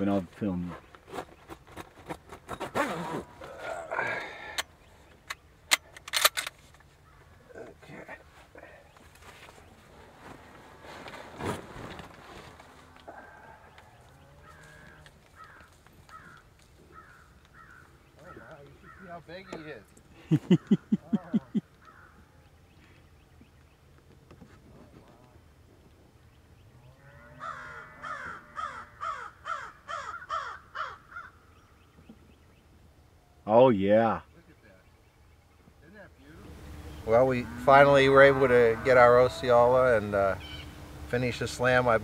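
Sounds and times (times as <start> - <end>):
bird calling: 6.9 - 10.4, 12.2 - 24.0, 26.3 - 33.5, 34.2 - 42.0
fabric rustling: 9.2 - 13.0
crow cawing: 13.0 - 19.7, 21.8 - 22.3, 27.4 - 31.4.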